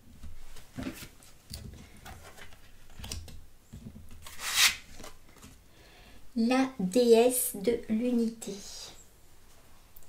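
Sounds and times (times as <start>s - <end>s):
card sliding swish: 4.3s - 4.8s.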